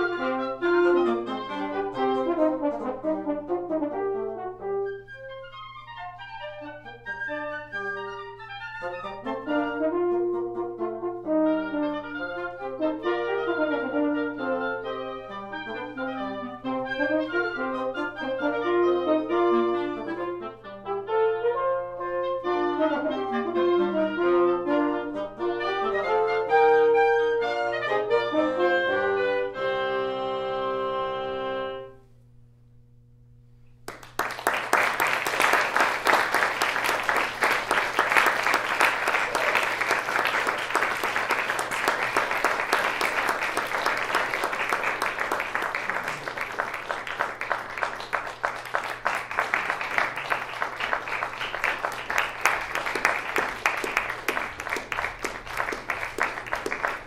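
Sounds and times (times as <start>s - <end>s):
woodwind quintet playing: 0.0s - 32.8s, 34.5s - 57.0s
audience applauding: 33.8s - 57.0s.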